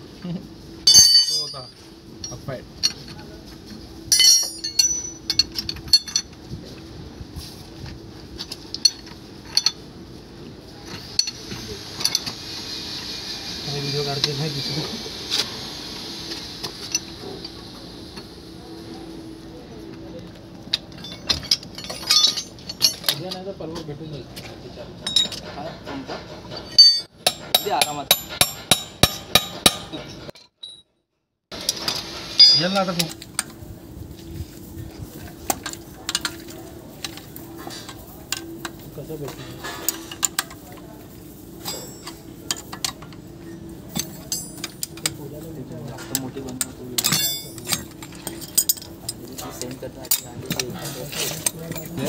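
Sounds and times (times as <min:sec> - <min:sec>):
spanner clanking on metal puller: 0:20.9 - 0:23.5, 0:45.9 - 0:52.0.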